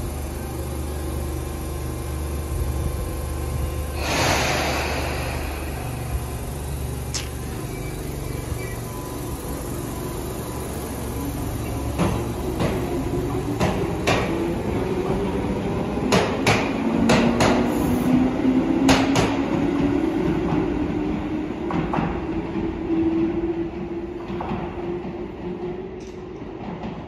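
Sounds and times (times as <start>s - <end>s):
traction motors whining: 0.0s - 16.1s
train running gear rumbling: 0.0s - 27.0s.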